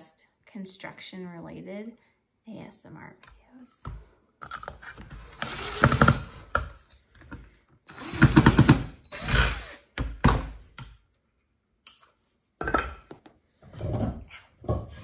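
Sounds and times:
impact driver rattling: 7.9s - 9.7s.

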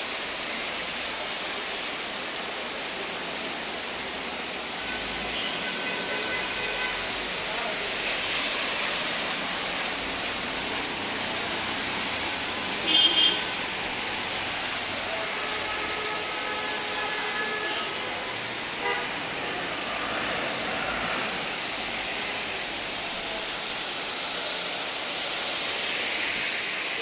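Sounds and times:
steady rain hiss: 0.0s - 27.0s
faint vehicle horns: 4.9s - 7.1s, 12.8s - 13.5s.

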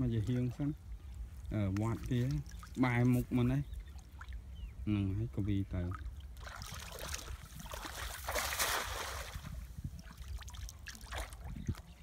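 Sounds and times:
water sloshing: 0.0s - 4.6s, 5.6s - 12.0s
net splashing into water: 6.4s - 9.5s.

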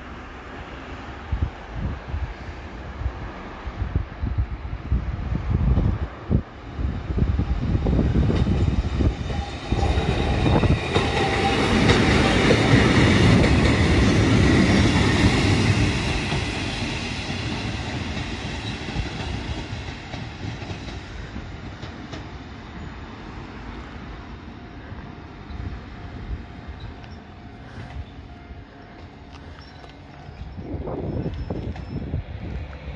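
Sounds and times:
electric train running past: 0.0s - 32.9s
train wheels knocking over rail joints: 8.2s - 22.4s.

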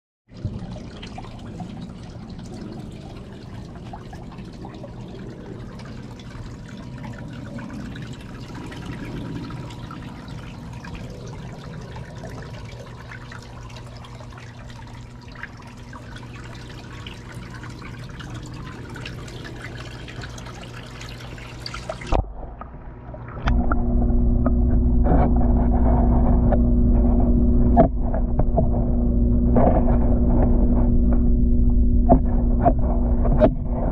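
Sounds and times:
water trickling: 0.3s - 24.5s
faint steady hum: 0.3s - 33.9s
muffled underwater hum: 0.4s - 33.9s.

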